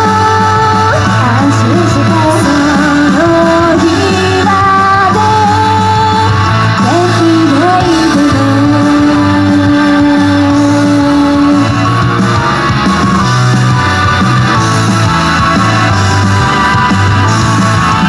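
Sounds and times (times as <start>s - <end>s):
woman singing: 0.0s - 11.8s
rock backing track with guitar: 0.0s - 18.0s
steady bass beat: 0.0s - 18.0s.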